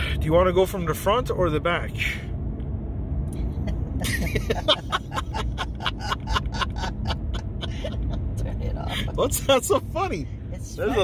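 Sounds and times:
car road rumble: 0.0 - 11.0
person laughing: 3.6 - 9.3.

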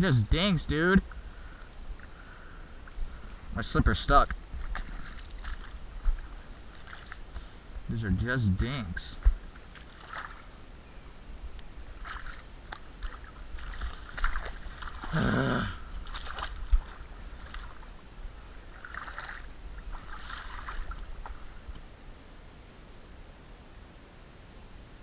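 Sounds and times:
squelching footsteps in mud: 0.6 - 22.0
wind rumble on microphone: 1.0 - 8.3, 11.0 - 15.2, 15.8 - 22.1.

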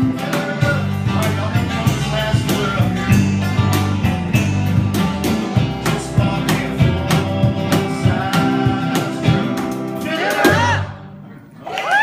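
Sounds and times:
man singing: 0.0 - 3.7, 5.5 - 10.9
cajon beat: 0.0 - 11.0
electric bass: 0.0 - 11.5
electric guitar: 0.0 - 12.0.

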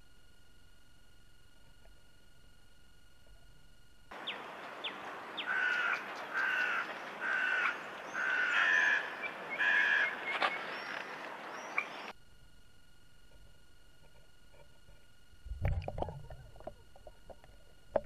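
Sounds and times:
outdoor background hiss: 0.0 - 18.0
bird calling: 4.1 - 12.1.

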